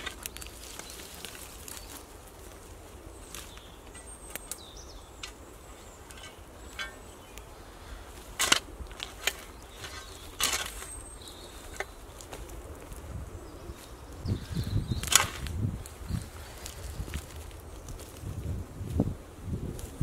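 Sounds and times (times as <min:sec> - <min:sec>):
dry stems cracking: 0:00.0 - 0:07.5, 0:08.1 - 0:13.0, 0:15.0 - 0:18.4
spade crunching into ground: 0:05.2 - 0:07.4, 0:08.1 - 0:12.0, 0:15.0 - 0:15.6.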